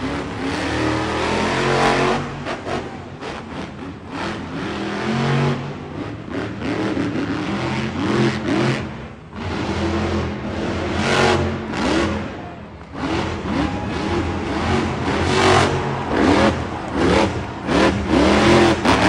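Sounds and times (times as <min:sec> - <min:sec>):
monster truck engine revving: 0:00.0 - 0:19.0.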